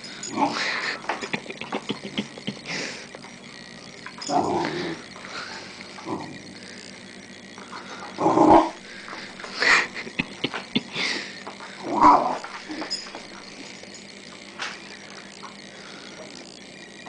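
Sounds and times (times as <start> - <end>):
puppy growling: 0.2 - 3.0, 4.2 - 6.5, 7.7 - 8.8, 11.8 - 12.9.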